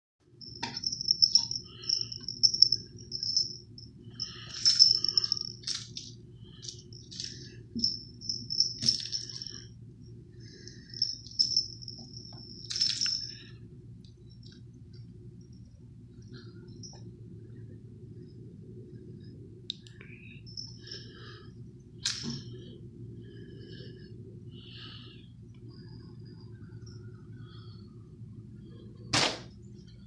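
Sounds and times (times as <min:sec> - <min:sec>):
toy jingling: 0:00.4 - 0:09.7, 0:10.8 - 0:13.5.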